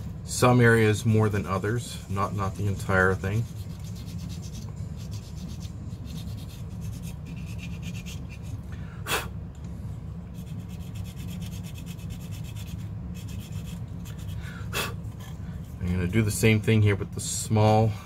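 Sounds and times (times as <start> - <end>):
steady low hum: 0.0 - 18.0
scratchy rubbing on plastic: 2.2 - 8.6, 10.4 - 14.4.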